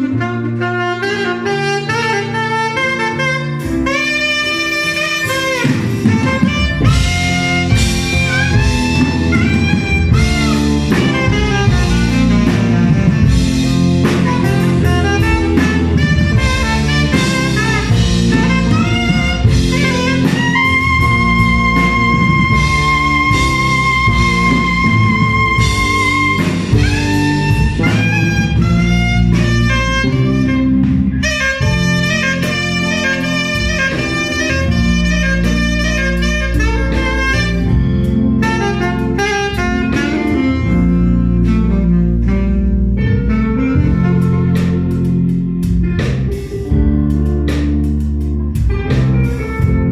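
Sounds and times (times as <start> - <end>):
band with bass and drums: 0.0 - 49.9
saxophone solo: 0.0 - 49.9.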